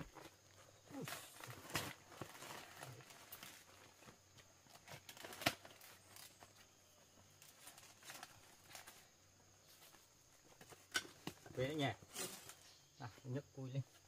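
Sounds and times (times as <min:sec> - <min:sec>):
rustling leaf litter: 0:00.0 - 0:09.9
twigs snapping: 0:04.8 - 0:06.4.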